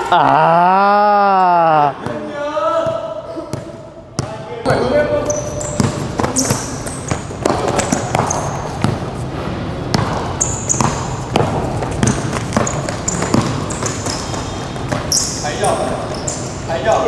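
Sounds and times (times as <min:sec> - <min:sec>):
basketballs bouncing: 0:01.9 - 0:16.6
shoe squeaks on court: 0:04.7 - 0:09.0, 0:10.3 - 0:17.0.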